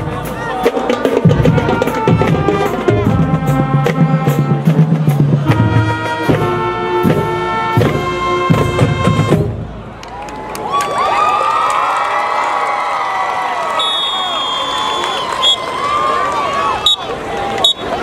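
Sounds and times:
marching band brass chords: 0.0 - 10.0.

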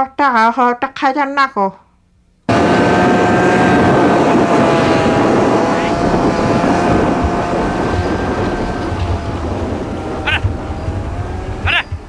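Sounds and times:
low rumbling noise: 2.5 - 12.0
snowmobile engine running: 2.5 - 12.0.

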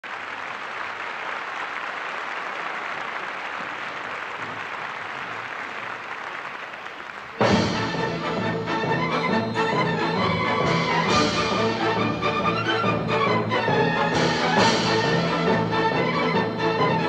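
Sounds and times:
crowd applause: 0.0 - 17.0
music: 7.4 - 17.0.

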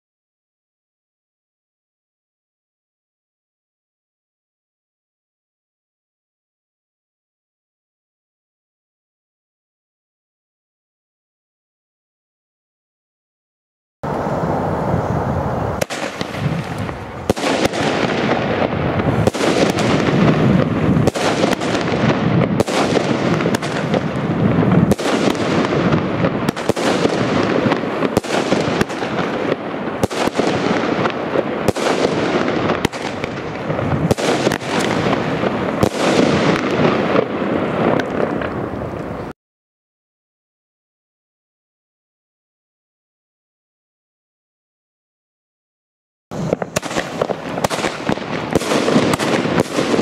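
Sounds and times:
firework reports: 14.0 - 39.4, 46.3 - 50.0
rush of bursting fireworks: 14.0 - 39.4, 46.3 - 50.0.

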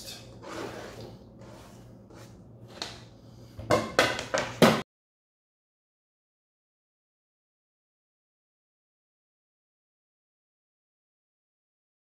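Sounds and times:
onion scraped off cutting board: 0.4 - 2.8
cutting board knocking on counter: 3.7 - 4.8.

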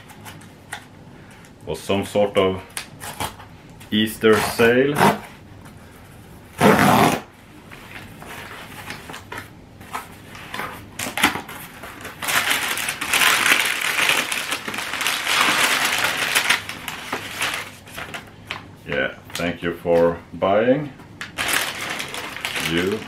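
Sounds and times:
cardboard box tear strip ripping: 6.6 - 7.3
packing paper crinkling: 7.9 - 18.7, 21.2 - 23.0.

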